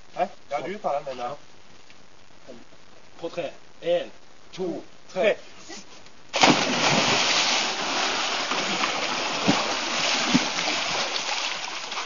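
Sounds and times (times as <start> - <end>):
people jumping into water splash: 6.3 - 12.0
water splashing and churning: 6.4 - 12.0.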